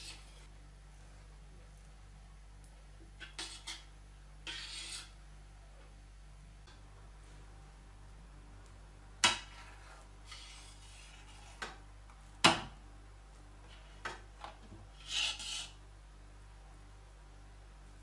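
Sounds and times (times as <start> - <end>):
spatula scraping strokes: 0.0 - 0.5, 3.2 - 5.2, 9.2 - 11.8, 14.9 - 15.8.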